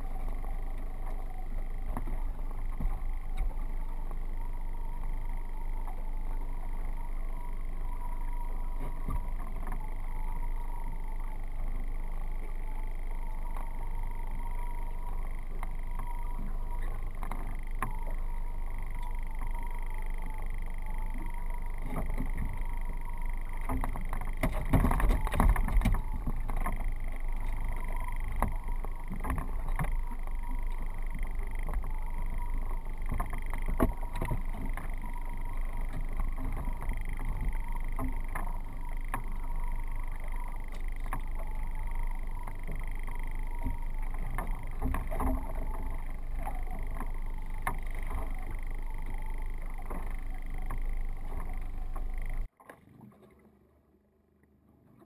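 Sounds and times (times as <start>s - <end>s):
steady high hum: 0.0s - 52.5s
wind and water noise: 0.0s - 55.0s
gear knocks and clunks: 20.9s - 52.5s.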